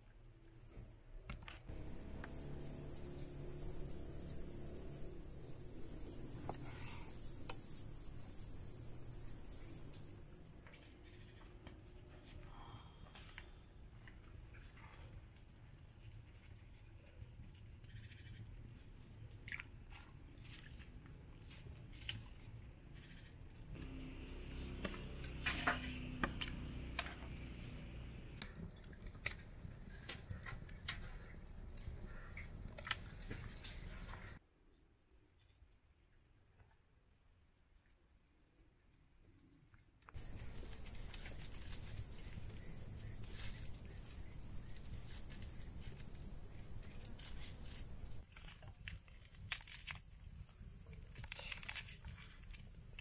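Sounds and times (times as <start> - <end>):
low steady rumble: 1.7 - 10.6, 23.7 - 34.3, 40.2 - 48.2.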